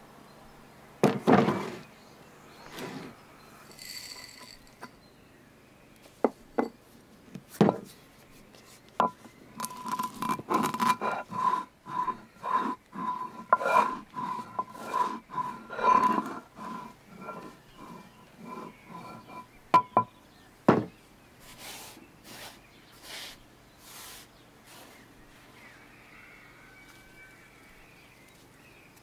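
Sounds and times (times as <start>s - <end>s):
stone rubbing and scraping: 9.0s - 20.1s
stone knocks: 18.6s - 20.1s, 20.7s - 20.9s.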